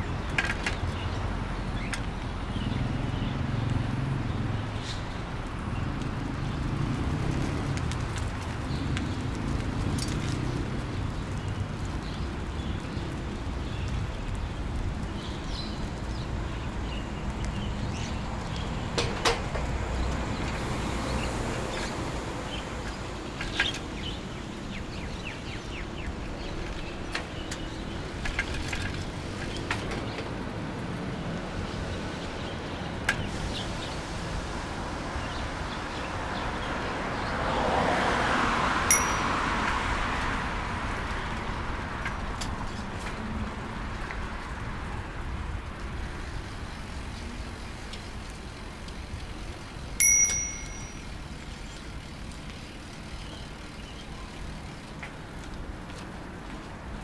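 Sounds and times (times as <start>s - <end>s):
roadside traffic noise: 0.0s - 57.0s
vehicle passing: 5.9s - 11.9s, 37.0s - 41.7s
short bell ding: 38.9s - 39.6s, 50.0s - 51.1s.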